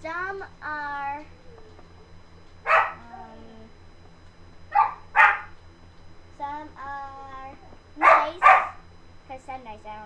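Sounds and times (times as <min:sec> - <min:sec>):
dog barking: 0:02.6 - 0:03.0, 0:04.7 - 0:05.6, 0:08.0 - 0:08.8.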